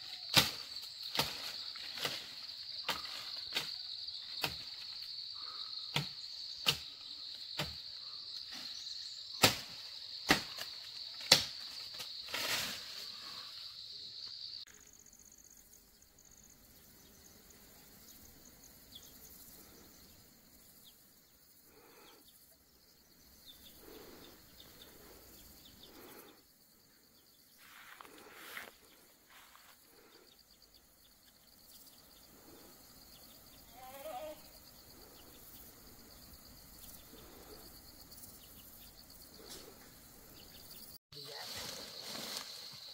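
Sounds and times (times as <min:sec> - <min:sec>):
branches being chopped: 0:00.0 - 0:05.0, 0:05.9 - 0:06.9, 0:09.4 - 0:12.8
insects shrilling: 0:00.0 - 0:16.4, 0:18.2 - 0:42.9
faint insect buzz: 0:00.0 - 0:42.9.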